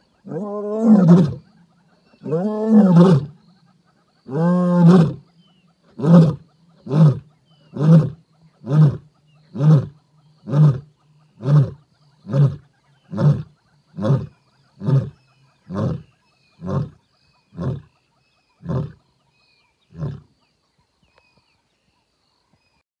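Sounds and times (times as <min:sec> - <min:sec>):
lioness grunting: 0:00.2 - 0:01.5, 0:02.2 - 0:03.4, 0:04.2 - 0:05.3, 0:05.9 - 0:17.9.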